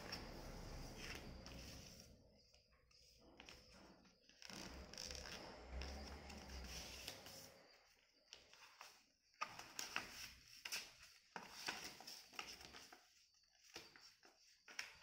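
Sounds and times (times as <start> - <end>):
paper rustling and crinkling: 8.3 - 15.0.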